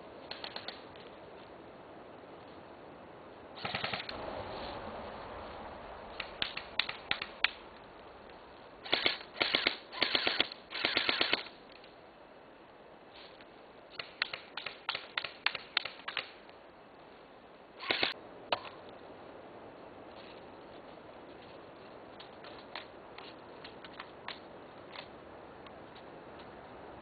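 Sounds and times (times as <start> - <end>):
airsoft gun full-auto bursts: 3.6 - 4.2, 8.8 - 11.5, 17.8 - 18.2.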